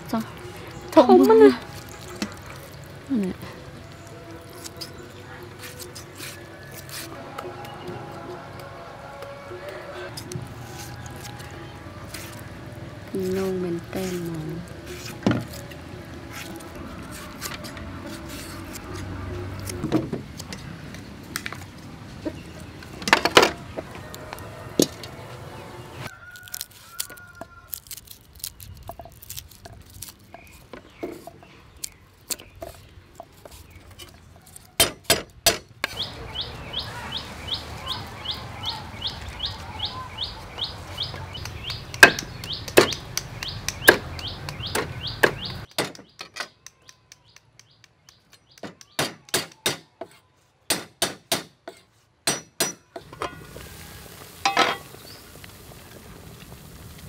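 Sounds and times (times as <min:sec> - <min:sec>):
high bird chirp: 0:35.9 - 0:49.2
metal pots and lids clinking: 0:54.4 - 0:54.9.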